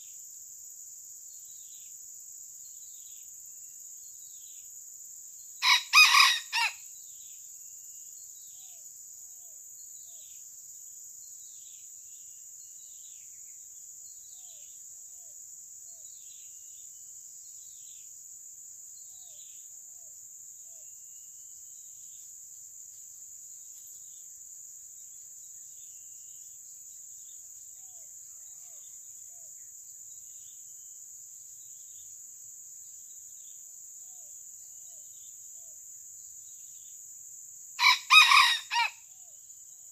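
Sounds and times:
rooster crowing: 5.6 - 6.8, 37.8 - 39.0
high-pitched insect drone: 5.6 - 7.0, 37.8 - 39.8.

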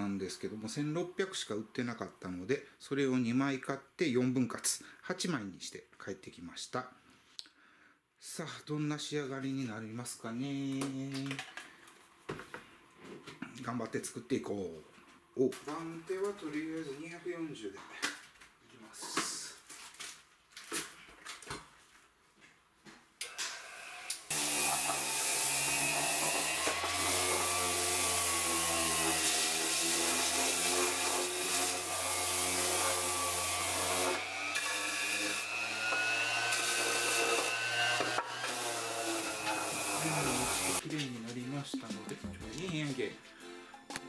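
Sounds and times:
electric sander running on wood: 24.2 - 40.8.

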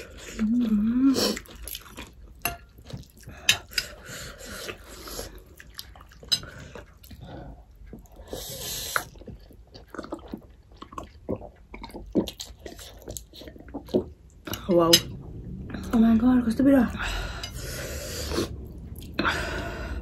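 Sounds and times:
wet chewing: 0.0 - 14.7.

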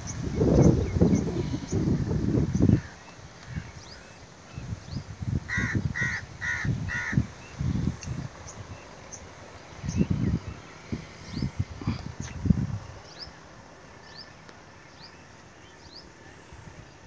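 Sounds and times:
small birds chirping: 0.0 - 17.0
crow cawing: 5.5 - 7.2.

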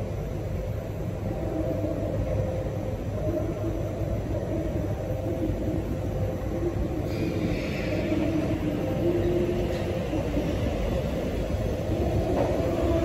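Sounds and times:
faint hum: 0.0 - 13.0
train equipment low rumble: 0.0 - 13.0.

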